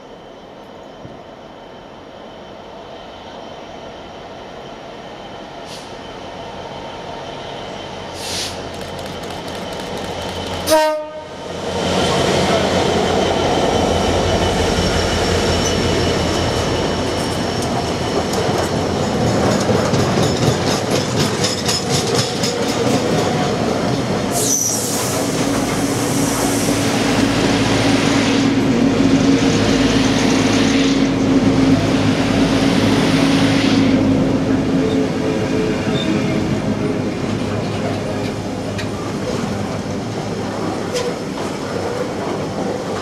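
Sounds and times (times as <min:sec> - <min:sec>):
diesel locomotive engine: 0:00.0 - 0:43.0
train wheels clattering over joints: 0:15.6 - 0:23.6
high wheel squeal: 0:24.4 - 0:26.7.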